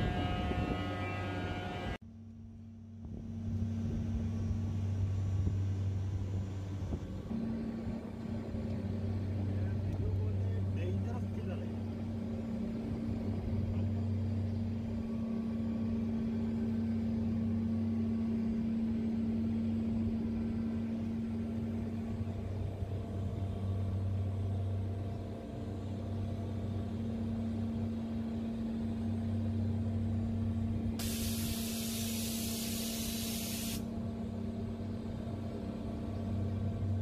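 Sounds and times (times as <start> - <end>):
loud even hiss: 31.0 - 33.9.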